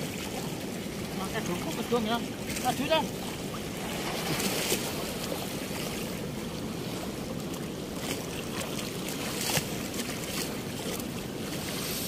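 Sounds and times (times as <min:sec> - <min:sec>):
water washing against bank: 0:00.0 - 0:12.0
net splashing in water: 0:03.8 - 0:05.3.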